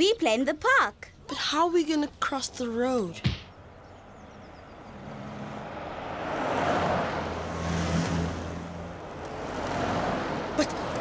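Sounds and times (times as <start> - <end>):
cars passing: 3.4 - 11.0.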